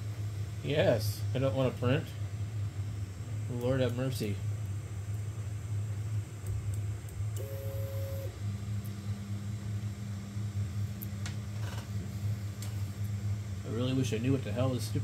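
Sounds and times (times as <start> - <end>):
steady low hum: 0.0 - 15.0
high two-note whine: 7.4 - 8.4.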